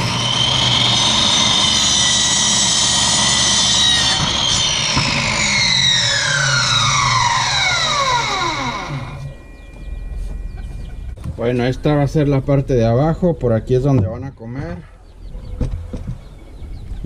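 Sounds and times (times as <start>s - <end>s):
miter saw whining: 0.0s - 11.2s.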